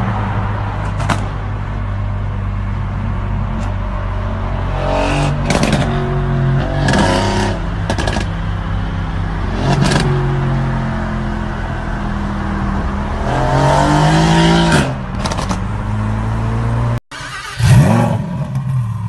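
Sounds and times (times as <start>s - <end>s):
car engine revving: 3.7s - 18.9s.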